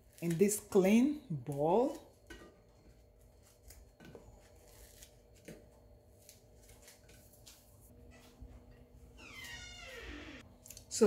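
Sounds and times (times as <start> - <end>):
dry bread crust tearing: 3.3 - 7.6.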